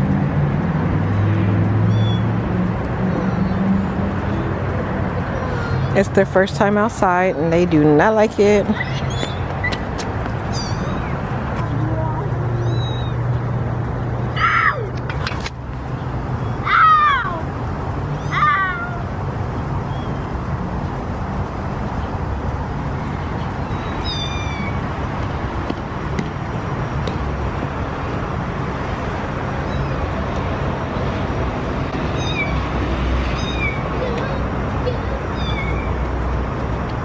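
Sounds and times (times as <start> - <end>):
kittens meowing: 1.9 - 2.3, 10.5 - 11.2, 12.0 - 13.2, 18.2 - 19.0, 23.6 - 24.8, 29.6 - 30.1, 32.1 - 32.6, 33.2 - 36.1.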